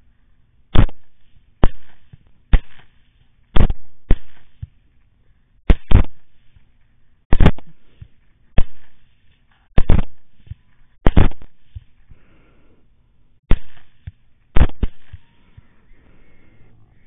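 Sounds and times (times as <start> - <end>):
rifle shots: 0.7 - 3.0, 3.6 - 4.6, 5.7 - 6.3, 7.3 - 7.8, 9.8 - 10.4, 11.0 - 11.6, 13.5 - 15.2.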